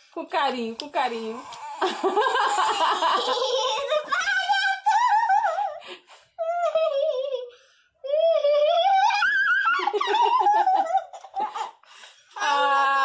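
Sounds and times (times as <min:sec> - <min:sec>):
girl giggling and squealing: 0:01.6 - 0:05.8, 0:06.4 - 0:07.5, 0:08.1 - 0:11.8.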